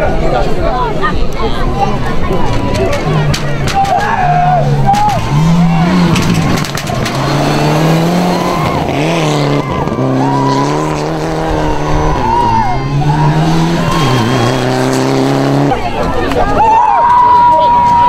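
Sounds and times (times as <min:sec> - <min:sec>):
rally car engine at high revs: 0:04.2 - 0:16.3.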